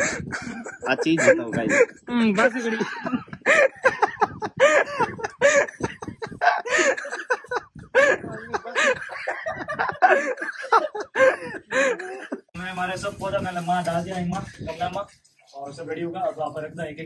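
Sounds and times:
people laughing: 0.0 - 12.5
people talking: 0.7 - 6.4, 7.5 - 10.0, 11.3 - 17.0.

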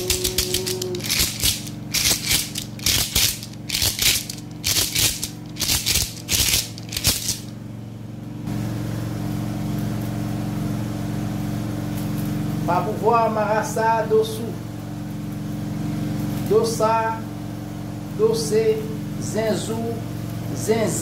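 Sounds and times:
gourd rattle shaken: 0.0 - 7.5
steady low hum: 0.0 - 21.0.

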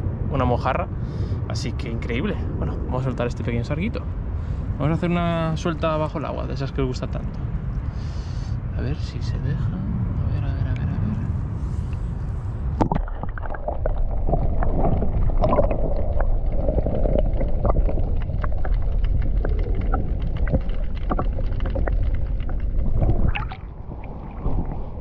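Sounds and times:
muffled underwater rumble: 0.0 - 25.0
small underwater clicks and crackles: 12.7 - 25.0.

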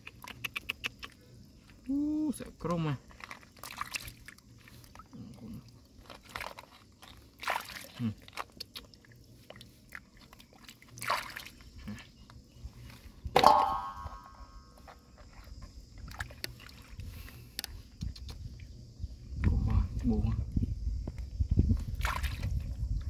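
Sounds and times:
hands splashing in water: 7.3 - 11.6, 21.9 - 22.6.

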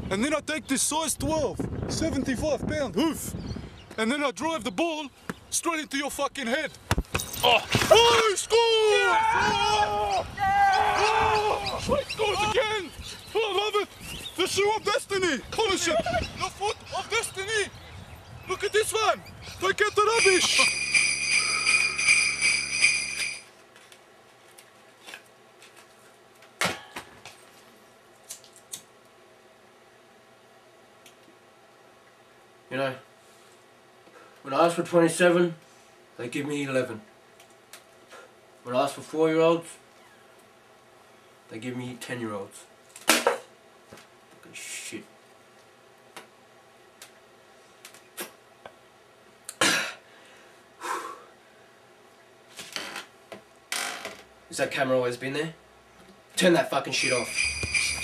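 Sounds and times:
jingle-bell music: 20.2 - 23.5, 57.0 - 58.0
man coughing: 49.6 - 50.0.

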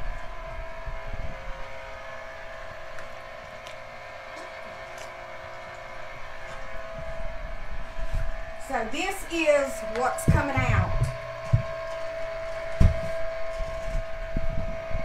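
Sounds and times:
motor humming: 0.0 - 15.0
low thumps: 9.8 - 11.9.

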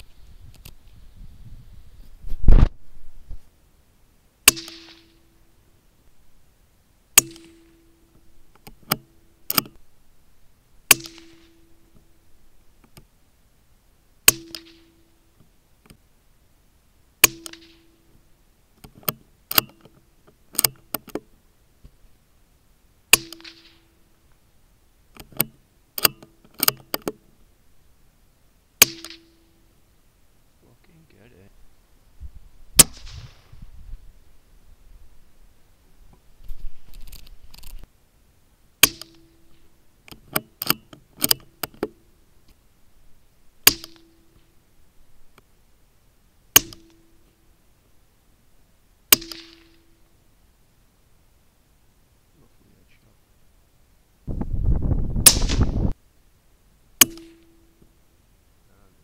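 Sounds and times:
quiet clicks: 0.0 - 1.0, 12.8 - 13.1, 25.1 - 27.2
air rifle shots: 4.4 - 5.2, 7.2 - 7.7, 10.9 - 11.6, 23.1 - 23.9, 28.8 - 29.4, 32.8 - 33.5, 38.8 - 39.3, 43.6 - 44.2, 46.6 - 47.0, 49.1 - 49.9, 55.2 - 55.9
deep rifle shot: 4.4 - 5.2, 7.2 - 7.7, 10.9 - 11.6, 28.8 - 29.4, 32.8 - 33.6, 38.8 - 39.3, 43.6 - 44.1, 49.1 - 49.9, 55.1 - 56.0.

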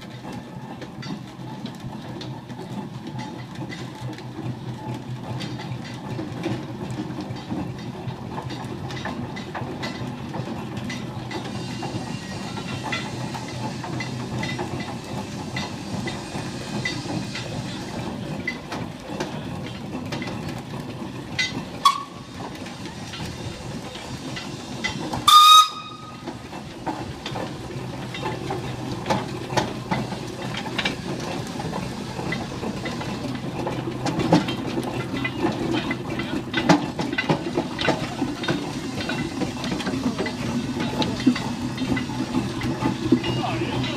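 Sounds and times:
steam traction engine beat: 0.0 - 43.9
steam whistle blast: 21.8 - 22.2, 25.2 - 26.2.

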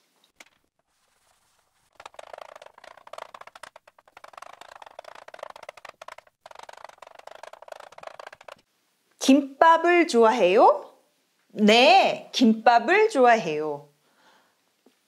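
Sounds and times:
blackboard being wiped: 0.8 - 8.6
chalk scratching on blackboard: 0.9 - 8.6.

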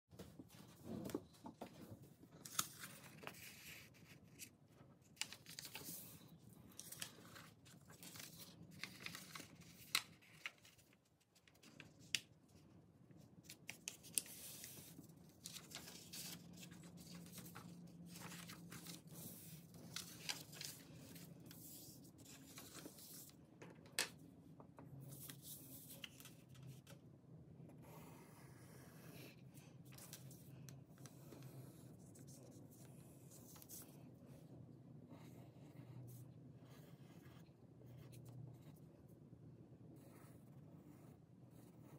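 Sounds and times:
paper rustling and creasing: 0.2 - 12.2, 13.4 - 23.4.

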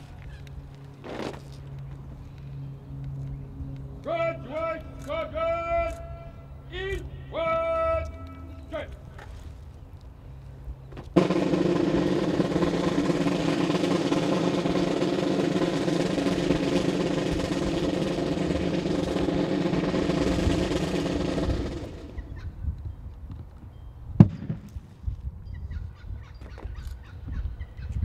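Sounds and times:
snare drum roll: 11.2 - 22.3.

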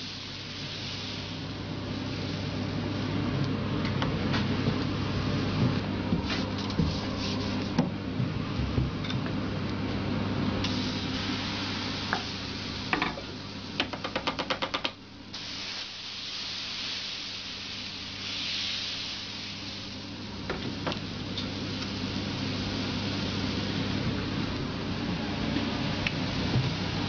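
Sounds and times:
batter sizzling on a griddle: 0.0 - 3.4, 10.6 - 13.8, 15.3 - 24.4.

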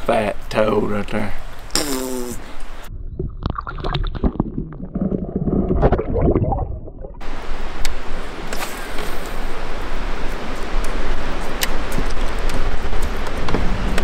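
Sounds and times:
wind and water hiss: 0.0 - 3.0, 7.2 - 14.0
underwater gurgling and sloshing: 2.8 - 9.2.

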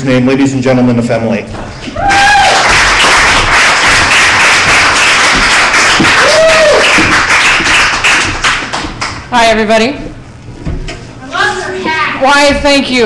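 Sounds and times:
person whooping: 1.9 - 2.8, 6.0 - 7.1
audience applauding: 2.1 - 9.3.

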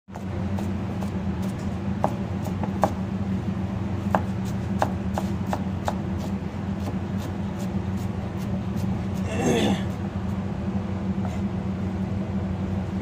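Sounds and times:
knife chopping on plastic board: 4.1 - 6.0.

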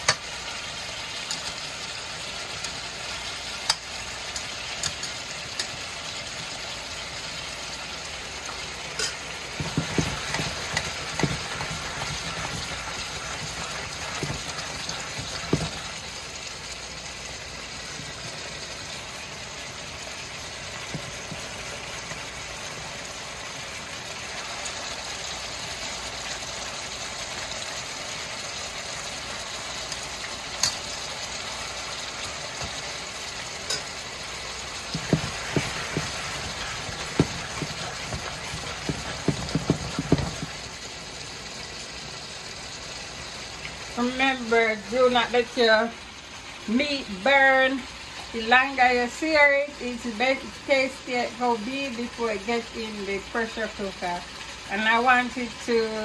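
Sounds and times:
meat sizzling in a metal pot: 0.0 - 56.0
metal spatula scraping a pot: 9.0 - 15.9, 34.9 - 40.6.

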